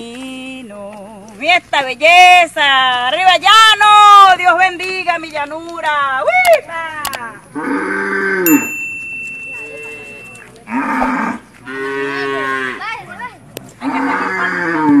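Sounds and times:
cattle mooing: 10.7 - 12.8, 13.8 - 15.0.

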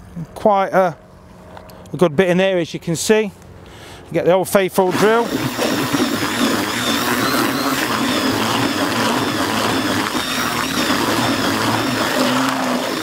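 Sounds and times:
cordless drill motor whine: 4.8 - 13.0.

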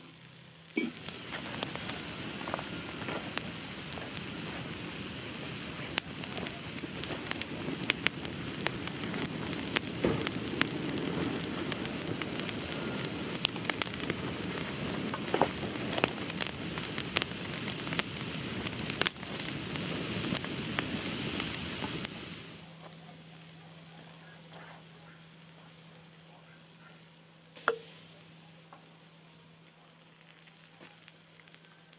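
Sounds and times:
fire rushing noise: 0.0 - 26.8
wood fire crackling and popping: 0.0 - 31.9.

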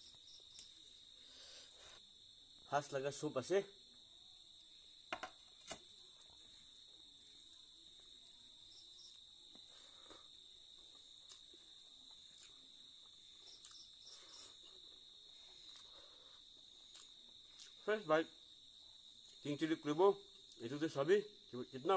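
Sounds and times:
crickets chirping: 0.0 - 21.9
rice mixed by hand and eaten: 4.6 - 19.6.

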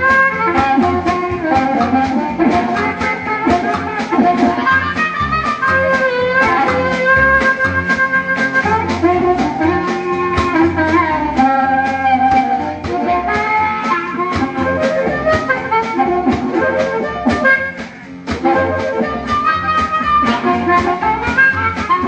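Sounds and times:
drum kit beat: 0.0 - 22.0
wind instrument lead line: 0.0 - 22.0.

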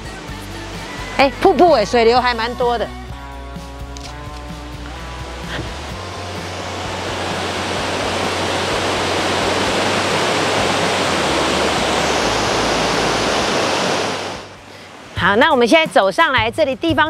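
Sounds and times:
waterfall pouring over a weir: 4.8 - 15.2.

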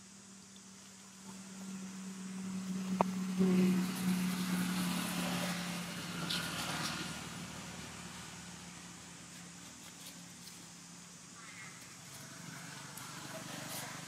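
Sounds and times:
low hum: 0.0 - 14.0
motor vehicle passing: 0.7 - 9.8, 11.4 - 14.0.

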